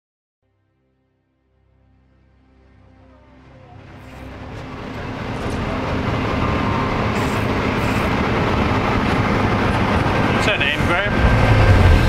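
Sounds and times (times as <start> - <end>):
train running rumble: 3.7 - 12.0.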